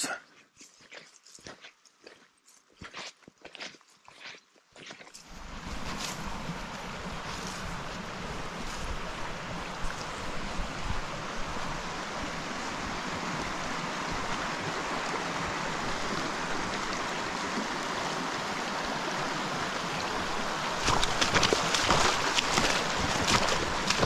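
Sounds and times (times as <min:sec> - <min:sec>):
footsteps on trail: 0:00.2 - 0:10.7, 0:20.8 - 0:24.0
stream running over rocks: 0:04.7 - 0:24.0.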